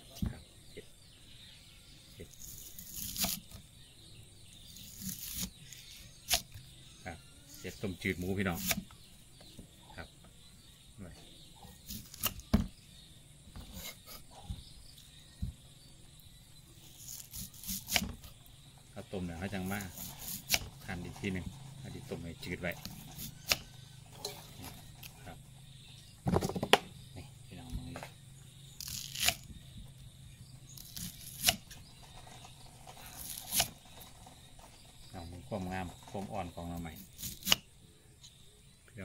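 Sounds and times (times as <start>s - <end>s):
faint insect hum: 0.0s - 39.0s
knife slicing on wooden board: 8.5s - 8.9s, 13.6s - 14.6s, 17.0s - 18.2s, 19.8s - 20.7s, 33.1s - 33.7s.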